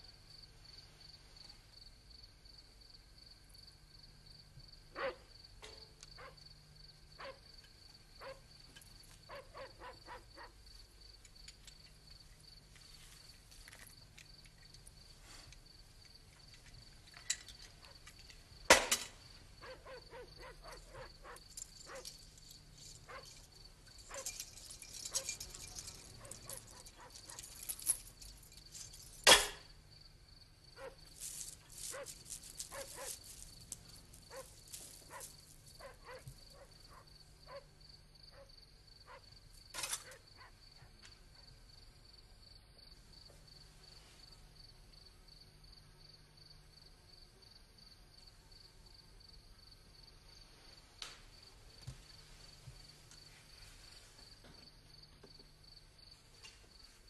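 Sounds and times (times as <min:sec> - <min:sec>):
dog barking: 0:04.9 - 0:06.4, 0:07.2 - 0:07.5, 0:08.2 - 0:08.5, 0:09.3 - 0:10.6, 0:19.6 - 0:22.2, 0:23.0 - 0:23.5, 0:24.1 - 0:27.7, 0:30.8 - 0:31.1, 0:31.8 - 0:33.4, 0:34.3 - 0:37.7, 0:38.3 - 0:39.3, 0:40.0 - 0:41.5.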